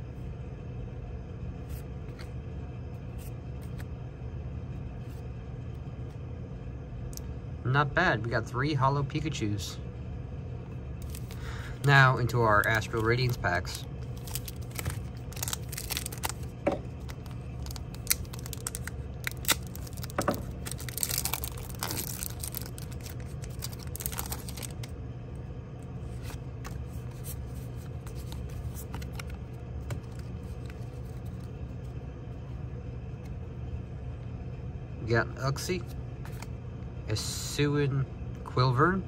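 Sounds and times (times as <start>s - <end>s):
low hum: 0.0s - 39.0s
plastic wrapper tearing and crinkling: 11.0s - 13.4s, 14.0s - 24.9s
cards sliding and clicking: 26.1s - 31.5s, 36.2s - 36.5s.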